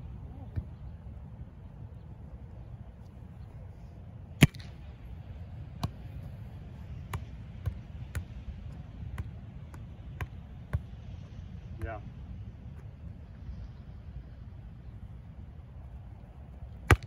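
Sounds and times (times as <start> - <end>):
low wind rumble: 0.0 - 17.0
volleyball slap: 4.4 - 4.8
light slaps and taps of ball: 6.9 - 12.0.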